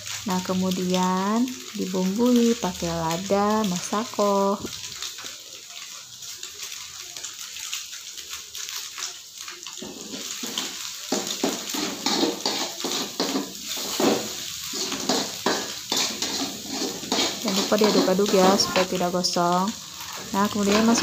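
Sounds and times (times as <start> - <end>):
egg sizzling in wok: 0.0 - 21.0
metal spoon scraping wok: 9.8 - 19.1, 20.0 - 21.0.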